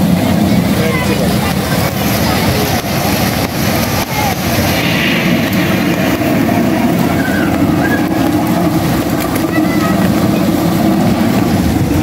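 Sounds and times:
fountain jets splashing into pool: 0:00.0 - 0:04.8, 0:06.5 - 0:12.0.

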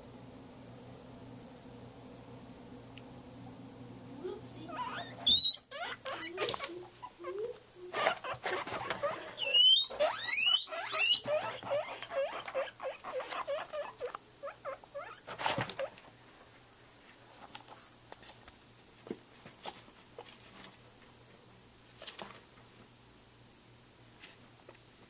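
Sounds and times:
guinea pigs wheeking: 0:04.6 - 0:16.1.

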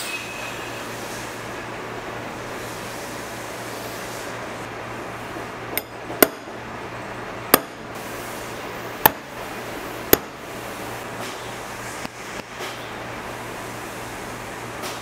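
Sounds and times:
steady background hum: 0:00.0 - 0:15.0
hammer striking: 0:05.8 - 0:06.5, 0:07.5 - 0:07.9, 0:09.0 - 0:09.4, 0:10.1 - 0:10.4.

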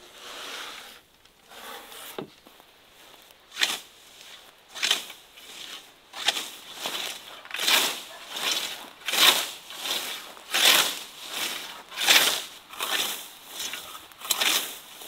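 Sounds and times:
scythe swishing through grass: 0:03.0 - 0:15.0.

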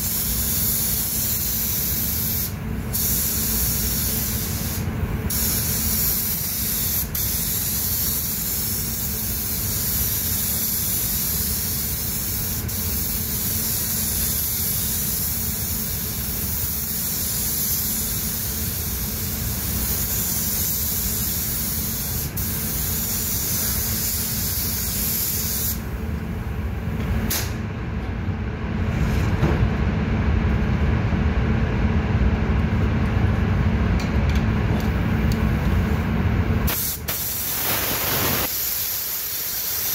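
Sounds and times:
paint spray gun hissing: 0:00.0 - 0:25.8, 0:36.7 - 0:39.9
low rumble of booth air: 0:25.8 - 0:36.7.

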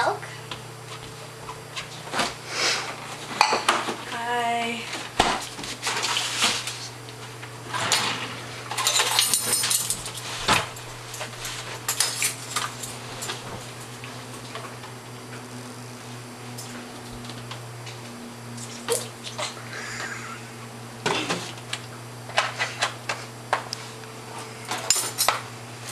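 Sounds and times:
steady low hum: 0:00.0 - 0:25.9
rustling scraping: 0:04.9 - 0:08.6, 0:09.5 - 0:13.8.

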